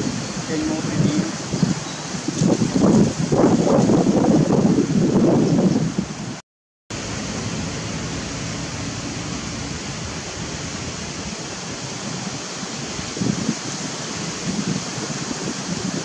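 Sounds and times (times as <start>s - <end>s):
outdoor background hiss: 0.0s - 2.4s, 6.2s - 15.9s
wind rumble on microphone: 0.0s - 16.0s.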